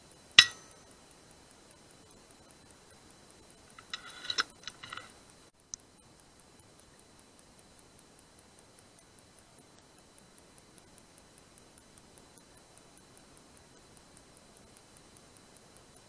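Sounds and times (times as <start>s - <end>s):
metallic clicks and rattles: 0.4s - 0.8s, 3.8s - 5.1s.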